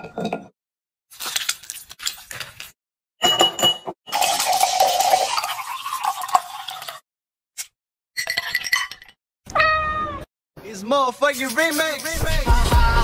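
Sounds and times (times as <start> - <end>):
glassy clinks: 3.2 - 4.4, 8.2 - 9.2
soda pouring and fizzing: 4.1 - 7.0.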